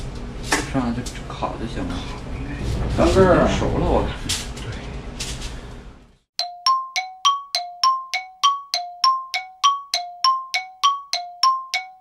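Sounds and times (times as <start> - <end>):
two-note timer alarm chime: 6.4 - 12.0.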